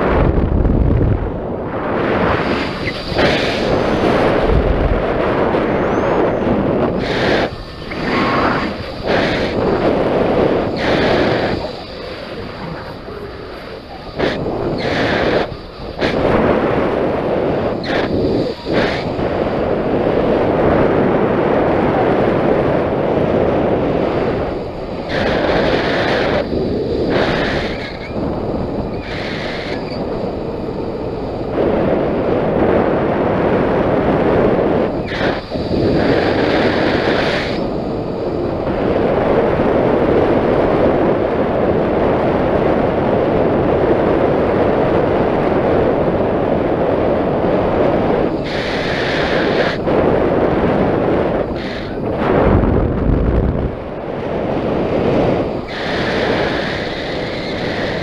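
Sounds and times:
wind rushing over microphone: 0.0 - 58.0.

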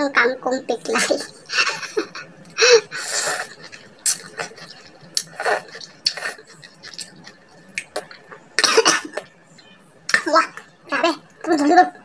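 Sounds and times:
noisy breaths: 1.5 - 4.6
slurping and chewing: 2.8 - 8.4.

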